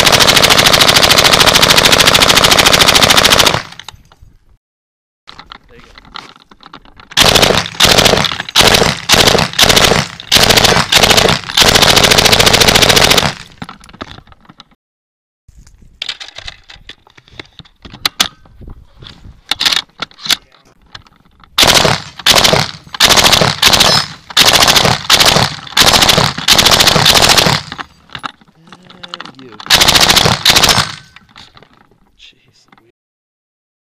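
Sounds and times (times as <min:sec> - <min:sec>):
automatic rifle fire: 0:00.0 - 0:03.8, 0:07.2 - 0:13.5, 0:21.6 - 0:27.8, 0:29.7 - 0:31.1
machine-gun bursts: 0:00.0 - 0:03.8, 0:07.2 - 0:13.5, 0:21.6 - 0:27.8, 0:29.6 - 0:31.2.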